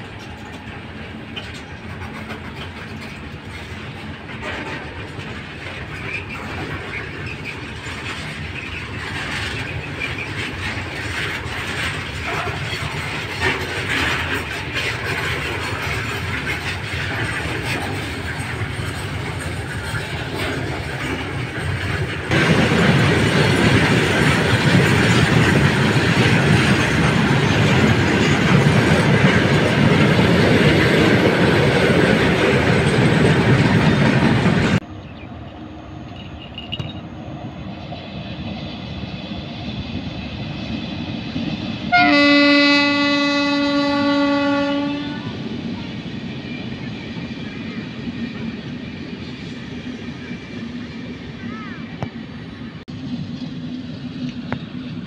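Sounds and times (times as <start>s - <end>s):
distant train running: 0.0s - 55.0s
train wheels rumbling and clattering: 0.0s - 55.0s
train horn blast: 41.9s - 45.3s.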